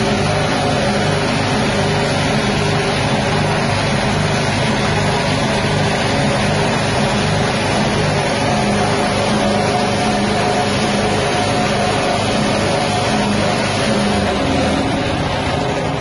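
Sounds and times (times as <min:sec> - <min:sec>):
grinding machine petrol engine: 0:00.0 - 0:16.0.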